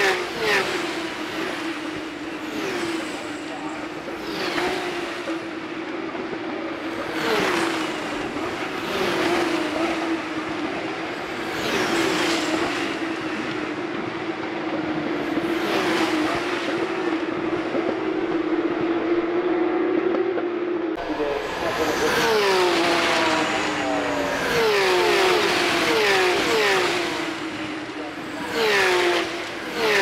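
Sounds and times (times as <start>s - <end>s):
engine drone from other cars: 0.0s - 30.0s
race cars passing at speed: 0.0s - 30.0s.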